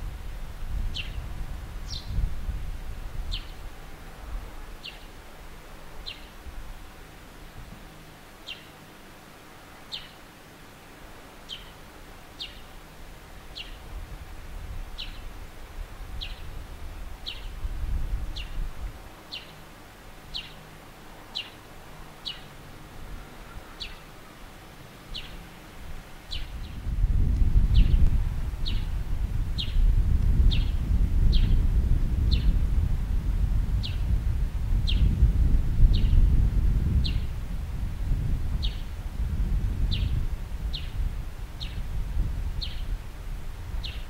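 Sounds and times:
small bird chipping: 0:00.9 - 0:01.2, 0:08.4 - 0:08.8, 0:11.5 - 0:11.8, 0:12.4 - 0:12.7, 0:19.3 - 0:19.7, 0:20.3 - 0:20.7, 0:21.3 - 0:21.6, 0:22.2 - 0:22.6, 0:23.2 - 0:24.2, 0:25.1 - 0:25.4, 0:26.3 - 0:26.8.

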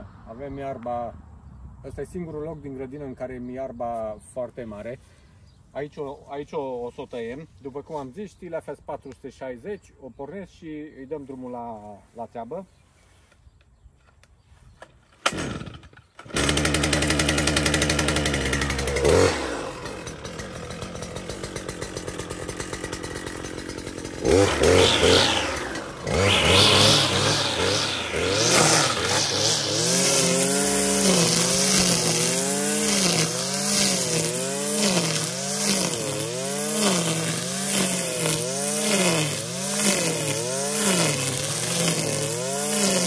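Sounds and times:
brushcutter engine: 0:15.1 - 0:43.0
trimmer line cutting grass: 0:15.1 - 0:43.0.

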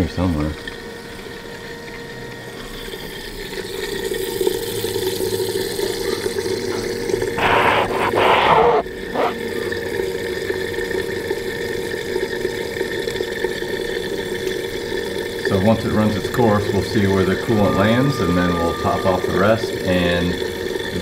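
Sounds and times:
coolant gurgling: 0:00.0 - 0:21.0
electric pump humming: 0:00.6 - 0:21.0
loud rush of noise: 0:07.4 - 0:09.3.

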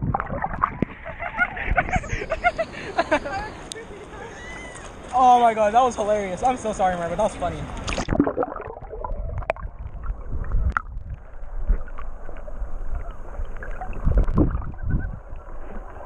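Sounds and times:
muffled underwater water slosh: 0:00.0 - 0:02.0, 0:07.6 - 0:16.0.

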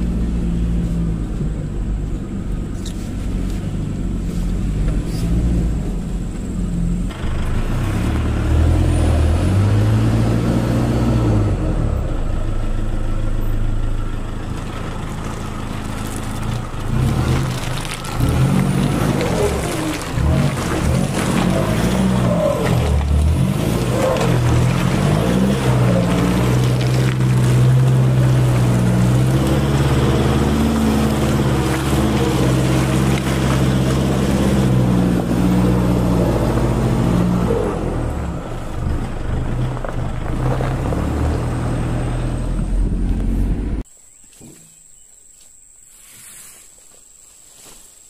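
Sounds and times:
pickup truck engine under load: 0:00.0 - 0:43.9.

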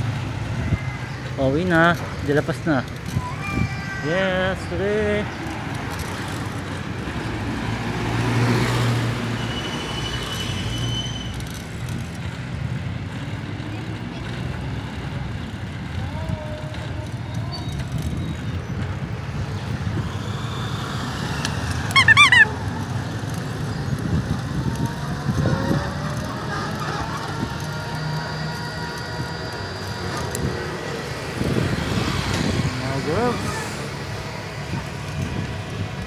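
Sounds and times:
road noise: 0:00.0 - 0:36.0
motorcycle engine: 0:10.5 - 0:36.0
warbling rising chirps: 0:21.9 - 0:22.5.

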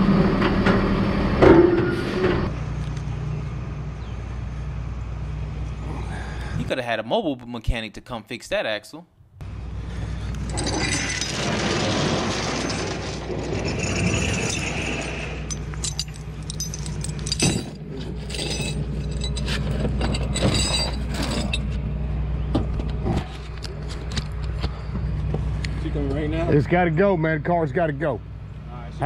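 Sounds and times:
truck engine humming: 0:02.5 - 0:06.6, 0:09.4 - 0:28.7
chains clinking and rattling: 0:10.4 - 0:21.8
sharp metal clanks: 0:12.5 - 0:21.7.

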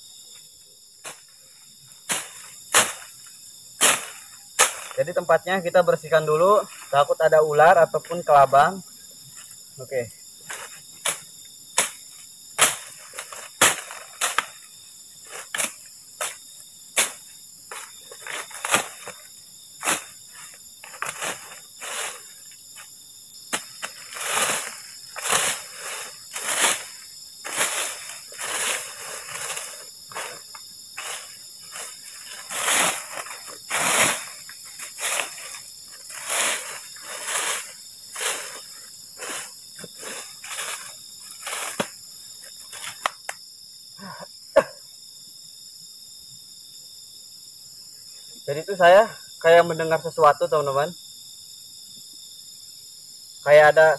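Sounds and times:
crickets chirping: 0:00.0 - 0:53.9
stick sweeping dry leaves: 0:02.1 - 0:05.2, 0:12.6 - 0:22.9, 0:23.5 - 0:43.1.

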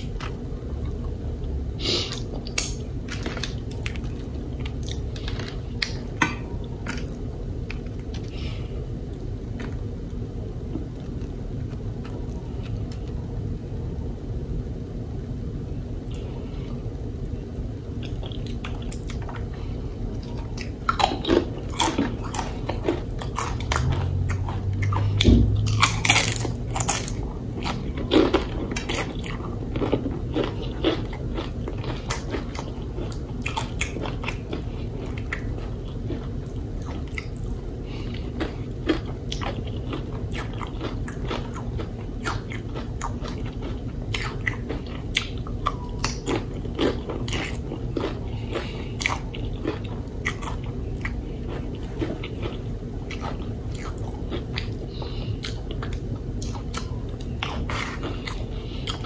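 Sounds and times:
crunchy chewing: 0:16.1 - 0:59.0.

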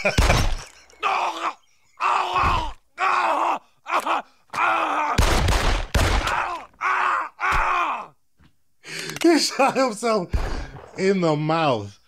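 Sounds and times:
cartoon man crying in pain: 0:01.0 - 0:05.2.

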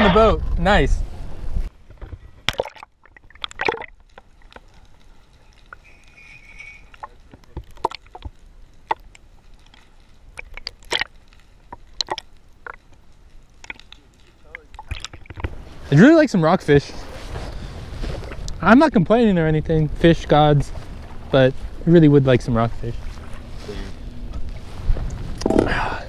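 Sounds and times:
splashes: 0:02.4 - 0:04.6, 0:10.3 - 0:11.3
underwater water sloshing: 0:22.6 - 0:25.7.

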